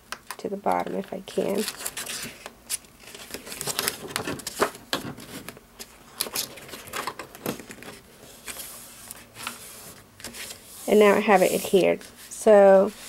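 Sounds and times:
cardstock rustling and scraping: 0:01.4 - 0:13.0.

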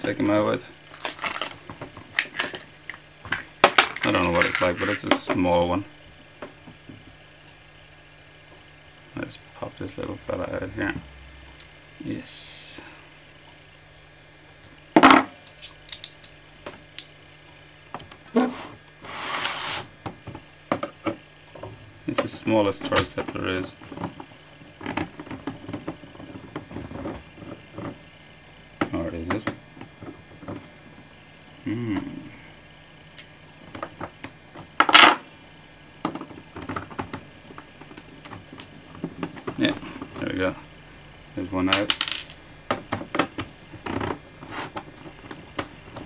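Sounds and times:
keyboard sliding scrape: 0:18.4 - 0:19.9.

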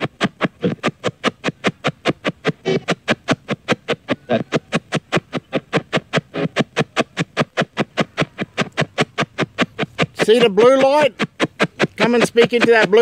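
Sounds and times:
radio static chopping: 0:00.0 - 0:13.0.

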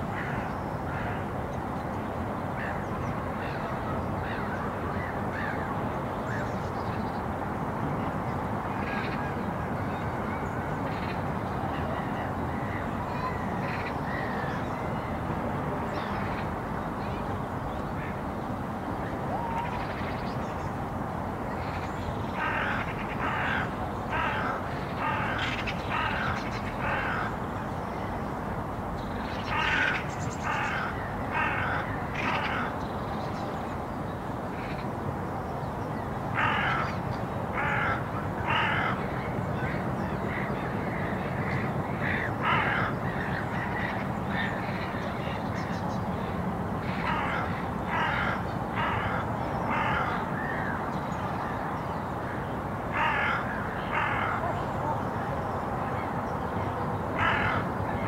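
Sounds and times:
steady background noise: 0:00.0 - 0:58.0
crow cawing: 0:22.4 - 0:27.4, 0:29.5 - 0:32.8, 0:36.4 - 0:37.0, 0:37.6 - 0:39.0, 0:42.0 - 0:43.2, 0:46.9 - 0:50.8, 0:52.9 - 0:54.5, 0:57.2 - 0:57.7.

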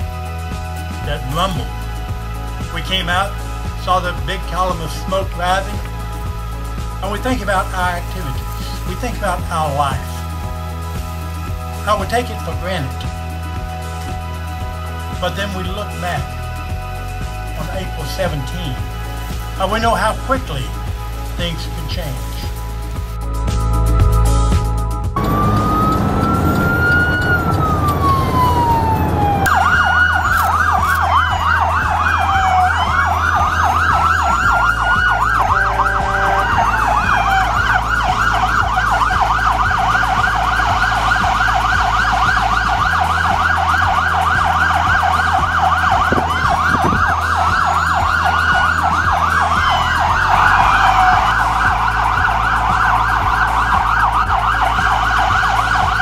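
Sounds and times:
siren rapid yelp: 0:25.2 - 0:56.0
siren wailing: 0:25.2 - 0:56.0.

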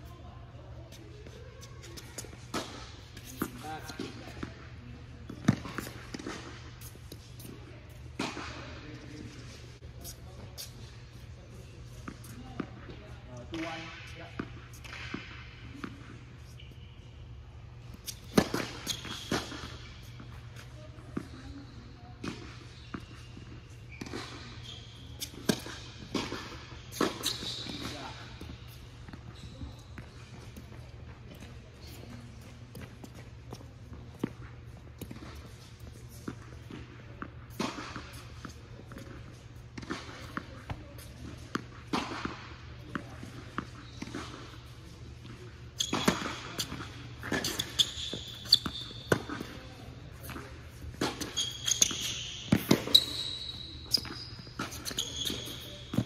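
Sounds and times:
sneakers squeaking on court: 0:00.1 - 0:56.0
ball bouncing on court: 0:05.2 - 0:09.2, 0:18.0 - 0:21.5, 0:45.2 - 0:56.0
tennis ball hit and bouncing: 0:05.3 - 0:09.2, 0:18.0 - 0:20.2, 0:32.4 - 0:44.5, 0:45.3 - 0:53.2
racquets striking tennis ball: 0:45.3 - 0:53.2.

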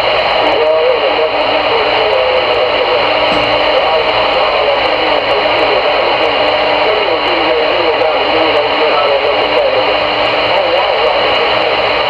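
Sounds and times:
radio static: 0:00.0 - 0:12.0
faint wavering tones: 0:02.4 - 0:12.0.

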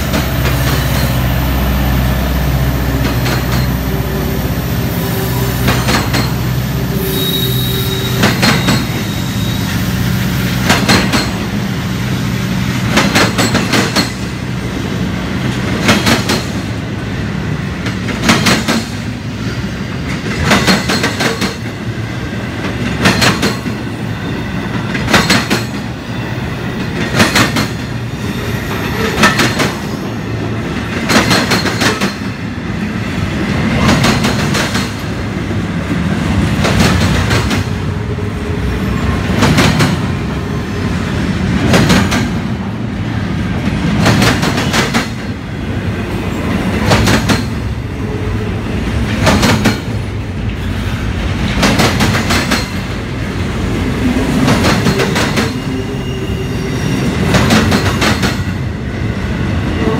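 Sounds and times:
steady train rumble: 0:00.0 - 0:59.9
train wheels clacking over track: 0:00.0 - 0:59.9
thin wheel squeal: 0:06.9 - 0:09.8.

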